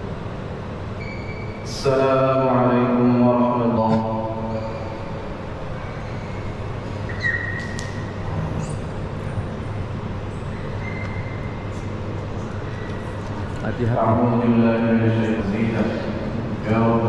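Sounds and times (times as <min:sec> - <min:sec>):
steady low hum: 0:00.0 - 0:17.0
brief high squeak: 0:04.4 - 0:05.2, 0:07.1 - 0:08.8.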